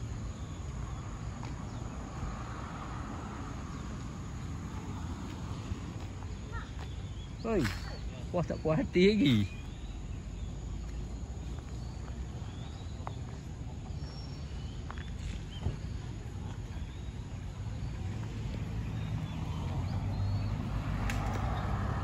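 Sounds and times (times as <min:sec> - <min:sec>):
vehicle engine approaching: 0:00.0 - 0:22.0.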